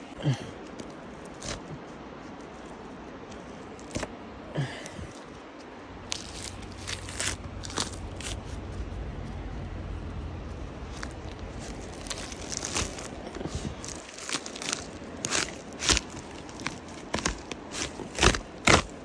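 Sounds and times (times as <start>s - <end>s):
tree bark tearing and snapping: 0.6s - 1.9s, 3.3s - 4.1s, 6.0s - 8.7s, 10.8s - 19.0s
low handling rumble: 5.8s - 17.7s.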